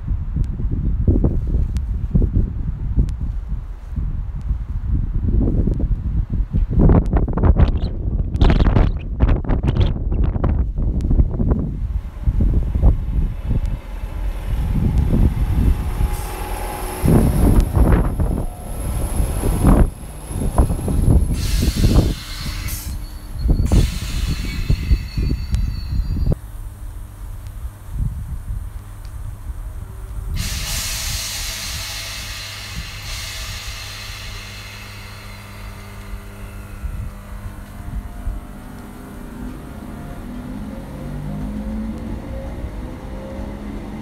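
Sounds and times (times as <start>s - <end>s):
train wheels rumbling: 9.4s - 44.0s
high-pitched train whine: 11.4s - 27.2s, 29.7s - 44.0s
compressed air hissing: 15.1s - 19.8s, 20.4s - 25.2s, 30.3s - 37.4s.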